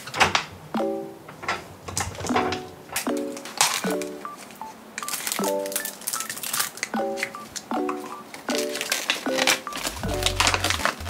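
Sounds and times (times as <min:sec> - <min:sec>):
paper crinkling and rustling: 0:01.9 - 0:11.0
light music with plucked chords: 0:06.9 - 0:11.0.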